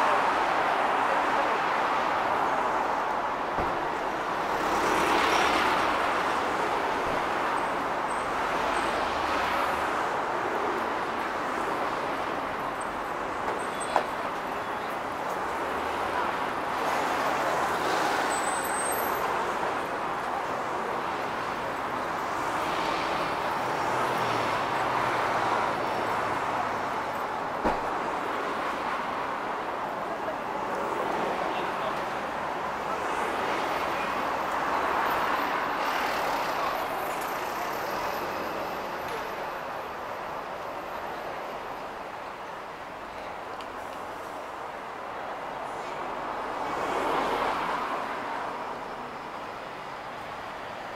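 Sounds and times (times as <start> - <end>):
cars driving past: 3.6 - 7.4.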